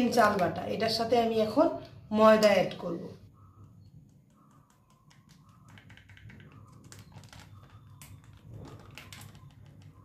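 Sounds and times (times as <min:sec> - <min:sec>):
plastic packet crinkling: 0:05.9 - 0:09.9.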